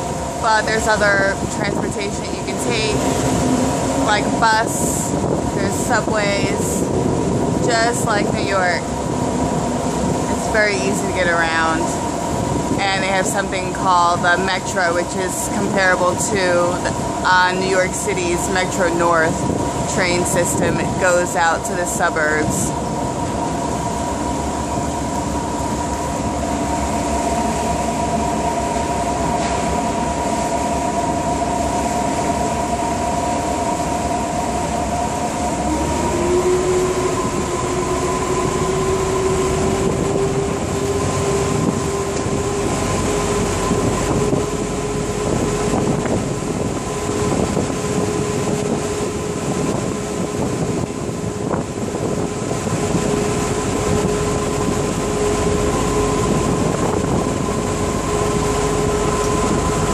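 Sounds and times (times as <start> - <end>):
boat engine drone: 0.0 - 59.9
water rushing: 0.0 - 59.9
whining tones: 20.0 - 59.9.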